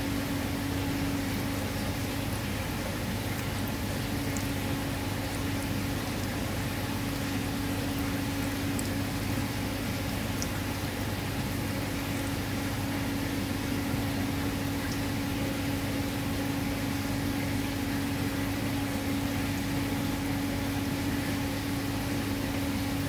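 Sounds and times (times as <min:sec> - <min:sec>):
bubbling aerated water: 0:00.0 - 0:23.0
pump motor humming: 0:00.0 - 0:23.0.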